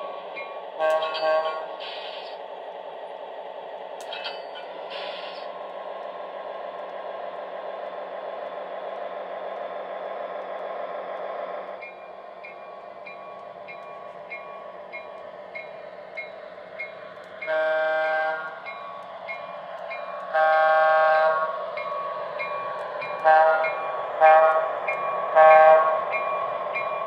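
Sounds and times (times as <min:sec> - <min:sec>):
model train diesel engine rumble: 0:00.0 - 0:11.8
train horn toot: 0:00.8 - 0:01.6, 0:17.4 - 0:18.5, 0:20.3 - 0:21.5, 0:23.3 - 0:24.7, 0:25.4 - 0:26.0
train bell ringing: 0:04.0 - 0:04.7, 0:11.8 - 0:20.3, 0:21.8 - 0:24.0, 0:24.8 - 0:27.0.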